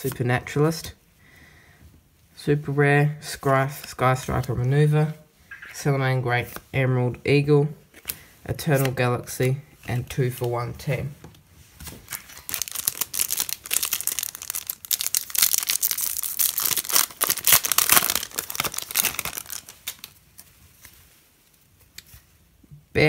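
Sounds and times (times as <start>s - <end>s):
foil wrapper tearing and crinkling: 12.1s - 20.2s.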